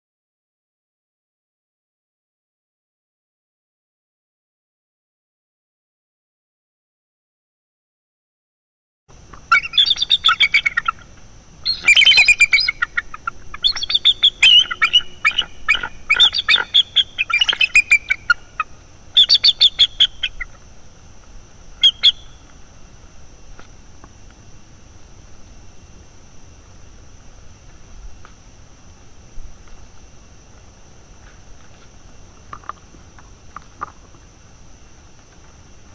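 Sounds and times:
eagles chittering calls: 9.5s - 20.6s, 21.8s - 22.4s.

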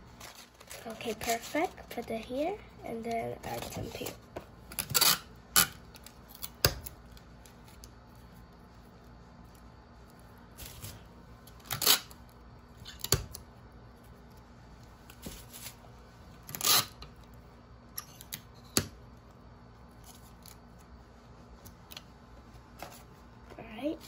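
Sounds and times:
paper rustling: 0.1s - 2.1s.

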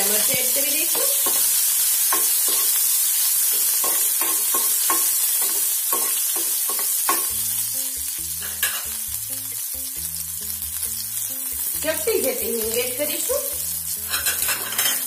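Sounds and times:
chillies sizzling in hot oil: 0.0s - 15.0s
soft background music: 6.9s - 15.0s.

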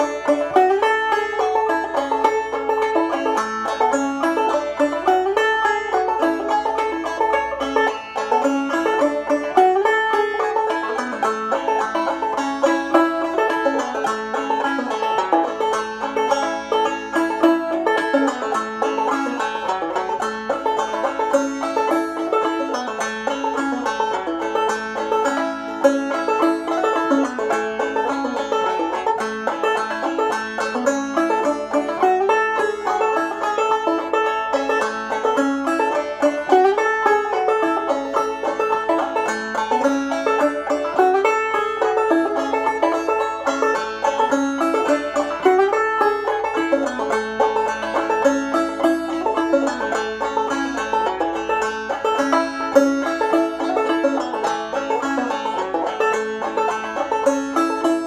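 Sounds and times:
banjo played clawhammer style: 0.0s - 58.0s.

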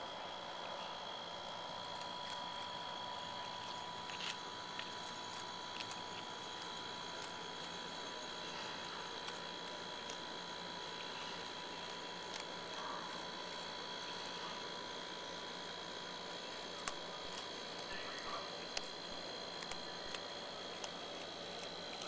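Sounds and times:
high steady whine: 0.0s - 22.0s
animal crunching dry food: 0.1s - 22.0s.

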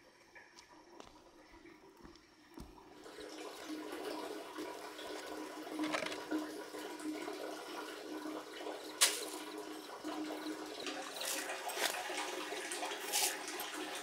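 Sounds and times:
rice pouring into plastic basin: 11.1s - 14.0s.

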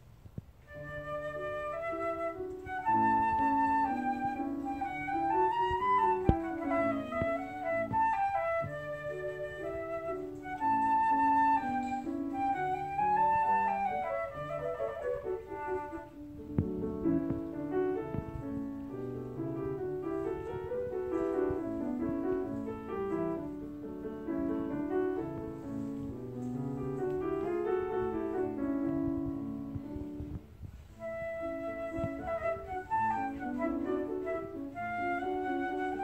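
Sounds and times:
flute playing: 0.7s - 18.6s, 30.9s - 36.0s
piano playing: 0.7s - 36.0s.

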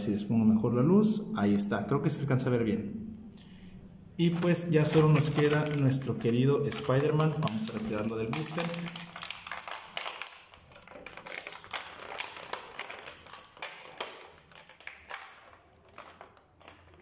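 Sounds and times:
plastic blister tray crinkling: 4.2s - 17.0s.

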